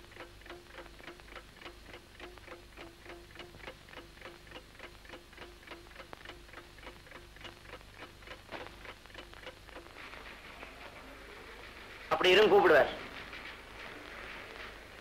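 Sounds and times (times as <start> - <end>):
clock-like ticking: 0.0 - 10.4.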